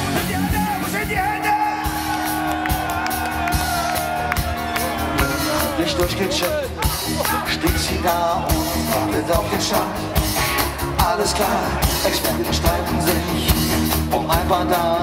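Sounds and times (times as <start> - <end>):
bass guitar: 0.0 - 15.0
drums: 0.0 - 15.0
electric guitar: 0.0 - 15.0
person singing: 7.2 - 15.0.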